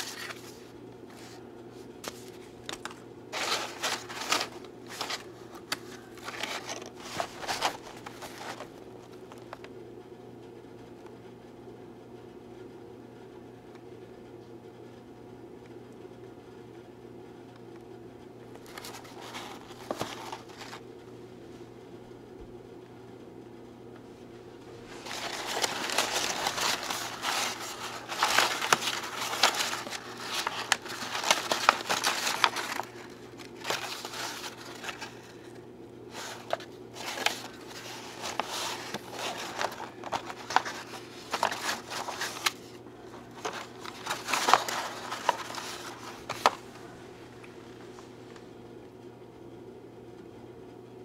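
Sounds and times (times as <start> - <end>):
packing paper crinkling: 0.0 - 1.4, 2.0 - 9.7, 18.5 - 20.8, 24.8 - 47.5
faint steady hum: 0.0 - 51.0.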